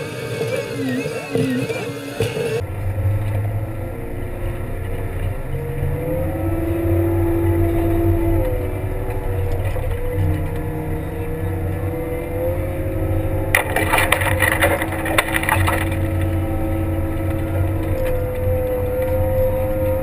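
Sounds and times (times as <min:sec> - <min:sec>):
diesel engine running under load: 0:00.0 - 0:20.0
plow blade scraping snow and ice: 0:00.0 - 0:20.0
steady whine: 0:00.0 - 0:20.0.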